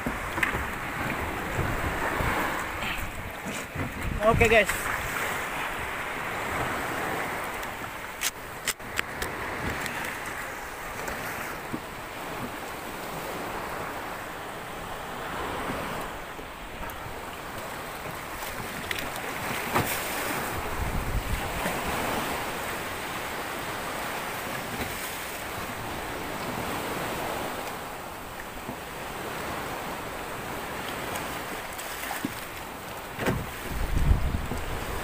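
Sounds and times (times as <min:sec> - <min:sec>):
wind buffeting microphone: 0:00.0 - 0:08.1, 0:18.0 - 0:22.7, 0:33.2 - 0:35.0
water splashing against boat hull: 0:00.0 - 0:35.0.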